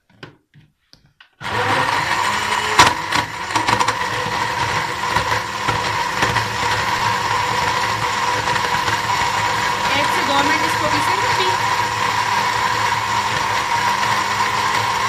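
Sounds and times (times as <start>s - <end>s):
electric blender running: 1.4s - 15.0s
sharp knocks of chunks in blender: 2.7s - 6.9s.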